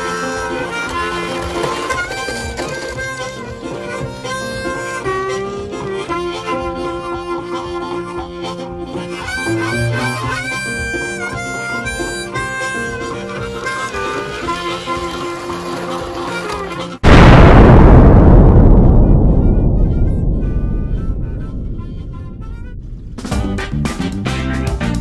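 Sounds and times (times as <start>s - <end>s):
harmonica music with bent notes: 0.0s - 17.0s.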